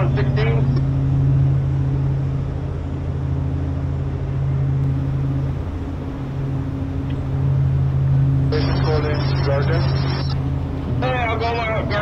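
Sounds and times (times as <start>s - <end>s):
ship diesel engines rumbling: 0.0s - 12.0s.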